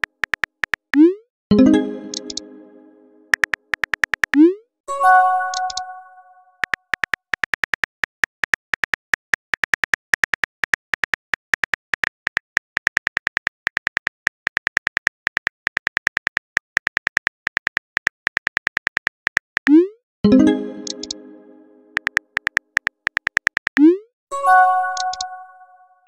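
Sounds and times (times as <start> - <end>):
phone keyboard typing clicks: 0.0 - 1.1, 2.0 - 2.5, 3.3 - 4.5, 5.4 - 5.9, 6.6 - 19.8, 20.8 - 21.2, 21.9 - 23.9, 24.9 - 25.3.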